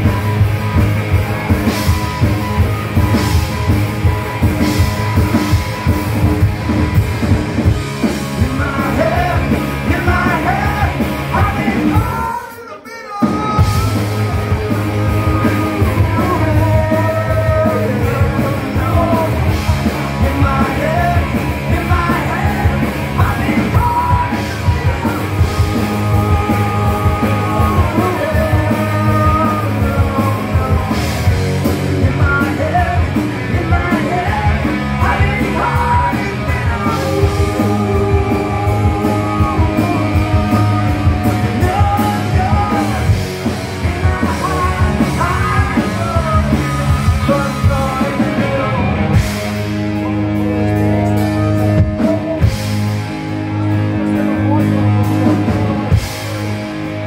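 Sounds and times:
live rock band playing: 0.0s - 57.0s
lead singer singing: 7.6s - 56.4s.

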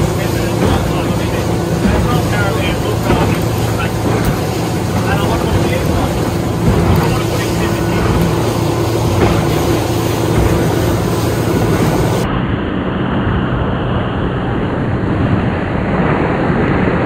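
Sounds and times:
boat engine drone: 0.0s - 17.0s
water rushing along hull: 0.0s - 17.0s.

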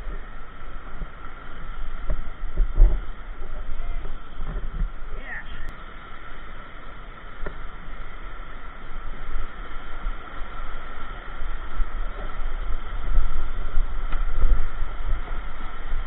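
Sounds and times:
heavy uneven microphone rumble: 0.0s - 16.0s.

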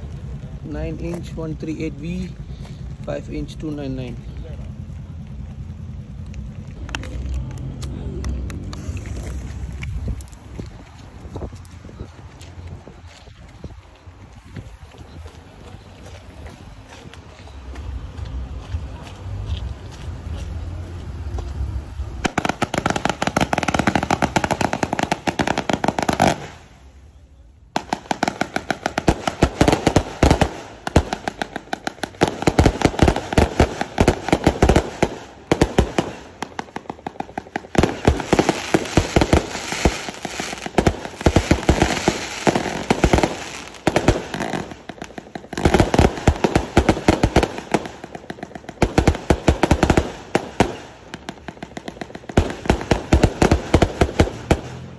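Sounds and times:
firework crackling bursts: 8.6s - 10.4s, 22.1s - 27.1s, 27.7s - 54.9s
fireworks firing sharp reports: 22.2s - 54.9s.

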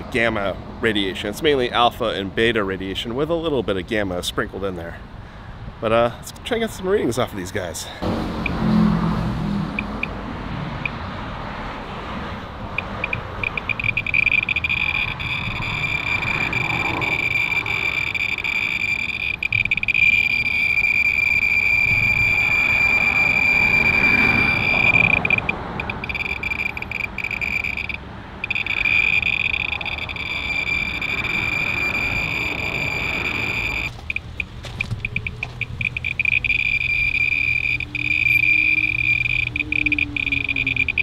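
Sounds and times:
radiation meter buzzing clicks: 12.8s - 41.0s.

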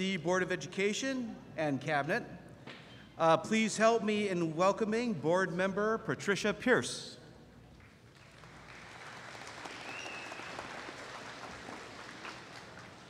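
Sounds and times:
audience applauding: 7.8s - 13.0s.

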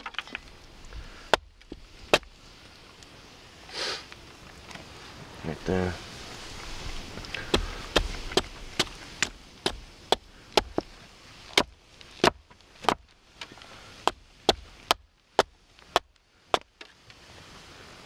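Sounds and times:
axe chopping wood: 1.1s - 2.3s, 7.4s - 16.9s.

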